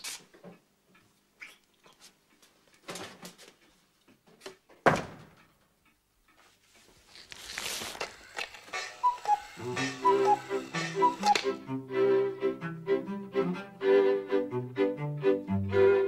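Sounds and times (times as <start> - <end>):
wooden door shutting with a thud: 4.8 - 5.3.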